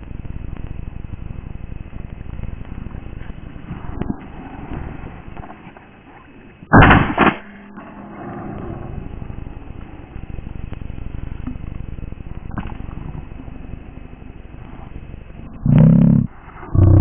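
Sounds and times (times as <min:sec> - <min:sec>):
wind rumble: 0:00.0 - 0:17.0
shotgun blast: 0:06.7 - 0:07.7.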